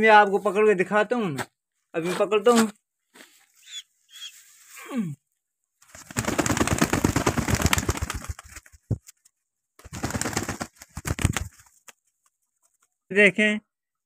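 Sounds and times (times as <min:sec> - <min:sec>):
pigeon wings flapping: 0:05.8 - 0:09.2, 0:09.8 - 0:12.9.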